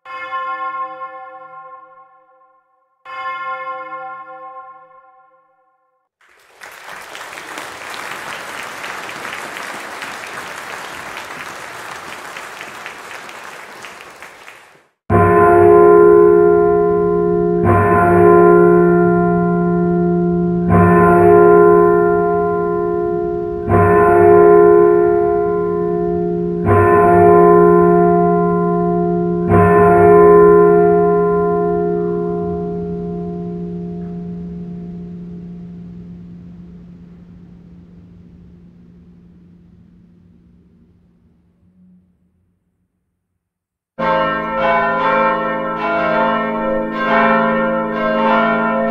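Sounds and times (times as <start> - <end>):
applause: 6.2 - 15.0
large bell tolling: 15.1 - 42.5, 44.0 - 48.9.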